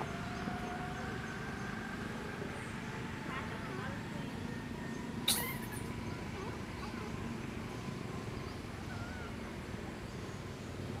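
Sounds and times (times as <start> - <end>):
low outdoor rumble: 0.0 - 11.0
faint wavering chirp: 4.2 - 6.2.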